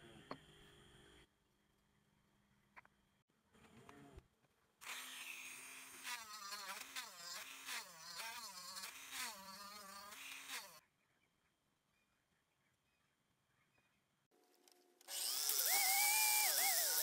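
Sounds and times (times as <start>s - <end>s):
rotary tool whining: 4.8s - 10.8s, 15.0s - 17.0s.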